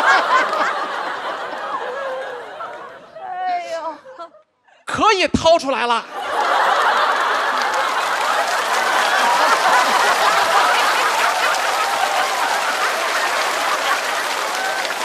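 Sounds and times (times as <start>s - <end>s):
audience clapping: 0.0s - 3.1s, 6.1s - 15.0s
studio audience laughing: 0.0s - 3.4s, 6.0s - 15.0s.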